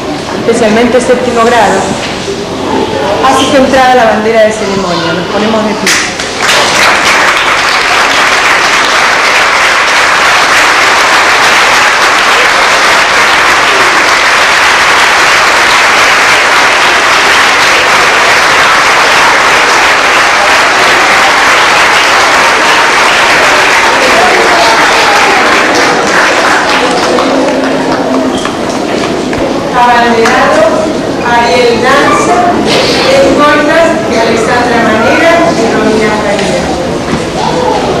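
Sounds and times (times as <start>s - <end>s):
large audience applauding: 5.9s - 30.5s.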